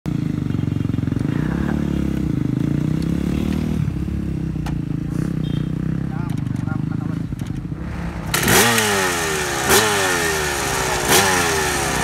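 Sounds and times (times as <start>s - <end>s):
motocross engine running: 6.3s - 12.0s.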